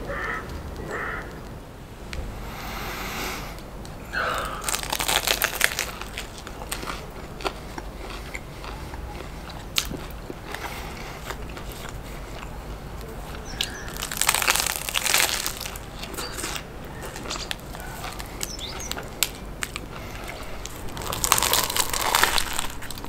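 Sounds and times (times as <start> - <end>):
chewing with crackles: 0.0 - 23.0
crunching bite into wrap: 3.6 - 23.0.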